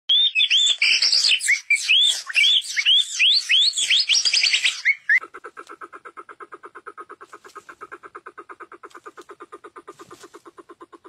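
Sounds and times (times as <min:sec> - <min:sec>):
songbird whistled song: 0:00.1 - 0:05.2
bird pulsed calls: 0:00.1 - 0:11.0.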